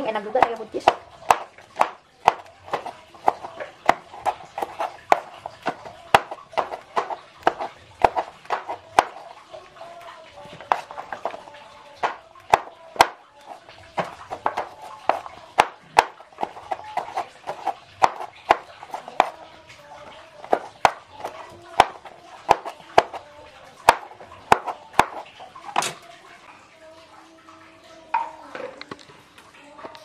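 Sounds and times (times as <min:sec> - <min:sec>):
knife chopping on cutting board: 0:00.3 - 0:09.3, 0:10.6 - 0:11.4, 0:12.0 - 0:13.2, 0:14.0 - 0:19.4, 0:20.4 - 0:23.2, 0:23.8 - 0:25.2.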